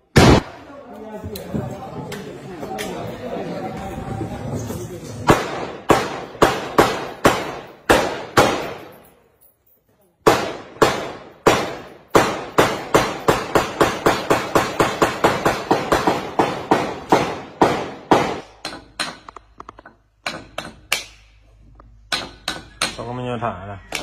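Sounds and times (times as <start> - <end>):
rifle shots with echo: 0.1 - 0.6, 5.3 - 9.0, 10.2 - 18.5.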